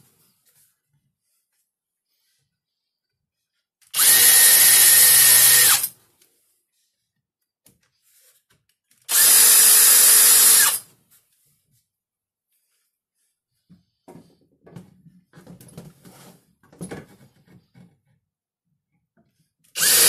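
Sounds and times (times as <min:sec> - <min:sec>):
cordless drill whining: 0:03.8 - 0:06.0, 0:09.1 - 0:10.9, 0:19.8 - 0:20.0.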